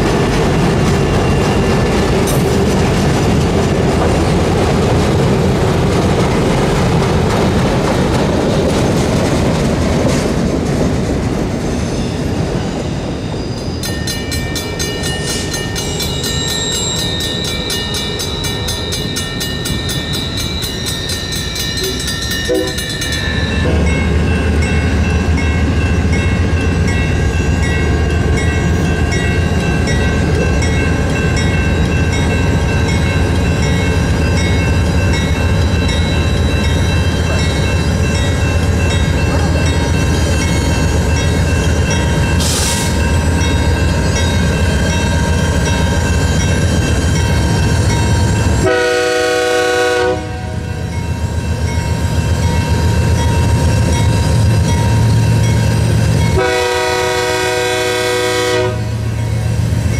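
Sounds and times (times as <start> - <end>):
train wheels rolling: 0.0 - 59.9
high tones: 11.6 - 48.7.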